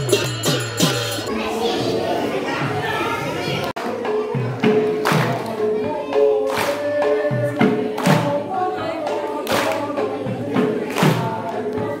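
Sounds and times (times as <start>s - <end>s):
loud percussion strikes: 0.0s - 1.5s
group singing a chant: 3.8s - 12.0s.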